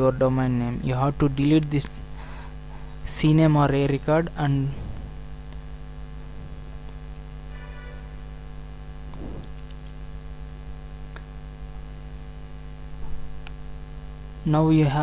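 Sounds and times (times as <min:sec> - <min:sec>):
electrical mains hum: 0:00.0 - 0:15.0.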